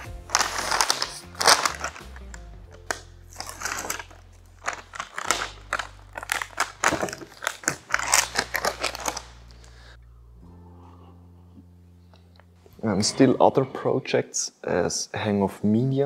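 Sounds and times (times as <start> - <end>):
paper envelope crinkling: 0.0 - 9.9.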